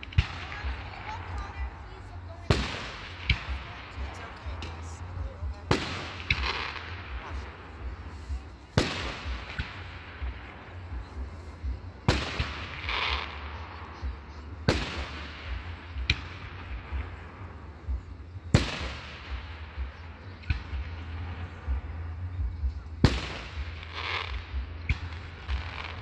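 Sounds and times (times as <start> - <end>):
steady low rumble: 0.0 - 26.0.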